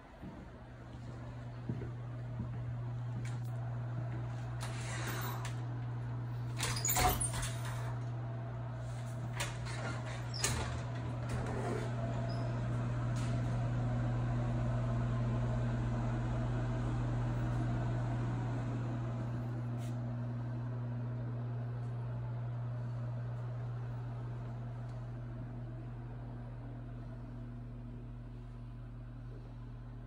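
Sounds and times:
low room hum: 0.0 - 30.0.

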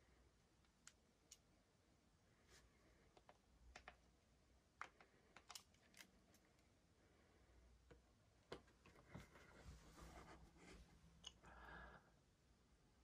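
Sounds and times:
faint clicks and ticks: 0.6 - 1.6, 3.0 - 4.2, 4.8 - 6.7.

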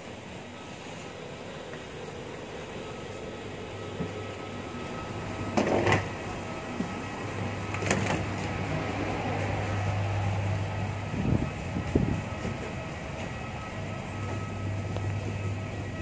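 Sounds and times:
steady low hum: 0.0 - 16.0
wheeled luggage rolling: 3.8 - 16.0.

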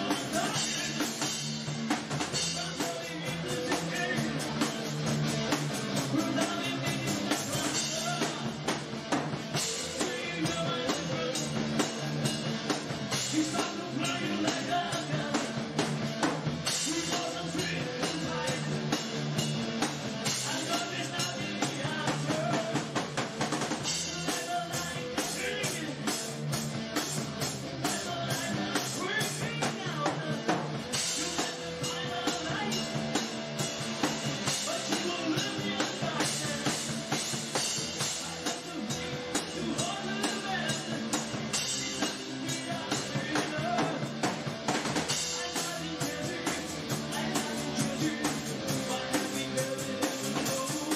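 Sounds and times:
drum kit beat: 0.0 - 50.9.

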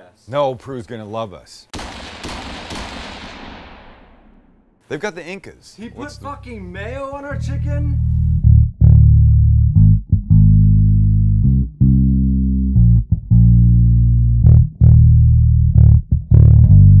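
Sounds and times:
bass-heavy music with low notes: 5.9 - 17.0.

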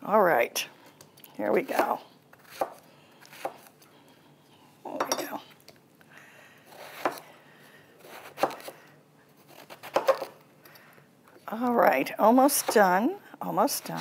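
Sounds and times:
knife chopping on cutting board: 8.0 - 8.7, 9.5 - 10.3.

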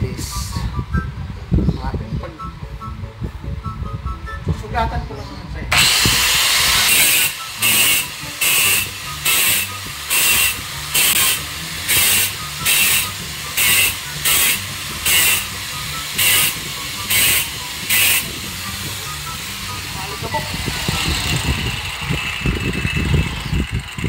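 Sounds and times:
grinder cutting into masonry: 5.7 - 18.5, 20.2 - 24.0
angle grinder motor running: 5.7 - 24.0.

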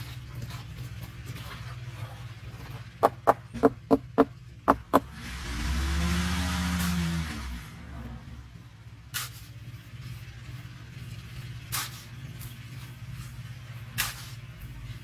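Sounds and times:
trowel scraping grit: 11.6 - 15.0.

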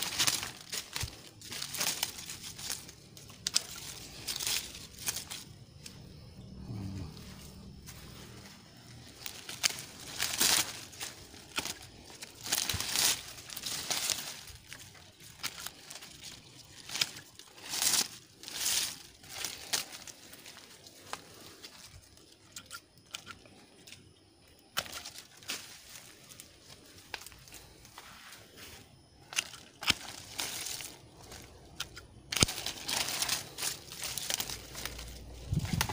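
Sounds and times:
leaves rustling and tearing: 0.0 - 23.9, 24.6 - 35.9.

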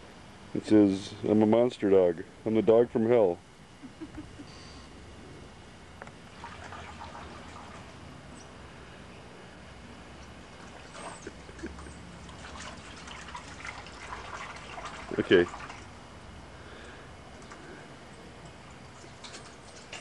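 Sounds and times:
water splashing in a bowl: 6.3 - 8.0, 10.6 - 16.0.

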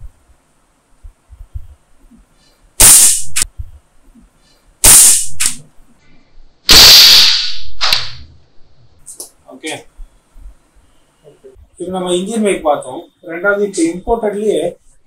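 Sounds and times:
short sharp crack: 4.9 - 5.6, 6.7 - 8.3
loud gunshot bangs: 6.7 - 8.2.

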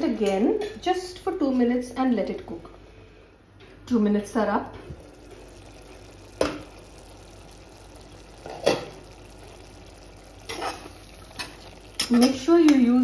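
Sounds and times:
pot simmering with bubbling hiss: 4.6 - 13.0.

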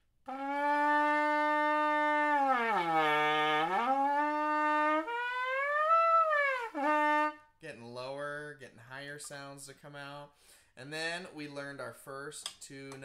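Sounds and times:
trumpet mouthpiece buzzing bending notes: 0.3 - 7.4.

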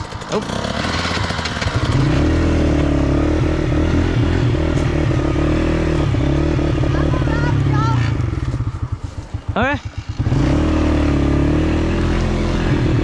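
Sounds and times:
small motorbike engine running: 0.0 - 13.0.

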